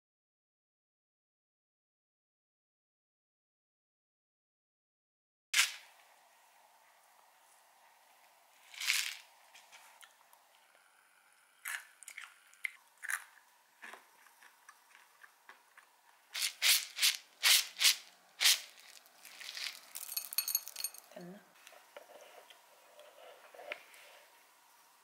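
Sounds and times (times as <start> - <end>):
granola pouring from a jar: 8.6 - 9.3, 18.4 - 21.0
granola sprinkled into a bowl: 8.6 - 9.9, 16.4 - 21.1
granola crunching: 11.6 - 15.9, 18.4 - 20.1.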